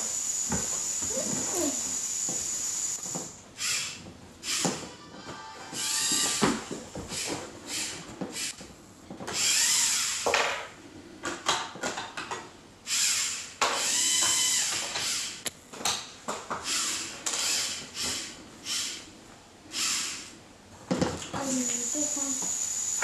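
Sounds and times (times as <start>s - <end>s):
electric motors whirring: 0.0s - 4.9s, 5.8s - 8.6s, 9.3s - 10.3s, 12.9s - 15.5s, 16.6s - 19.1s, 19.7s - 20.3s, 21.4s - 23.0s.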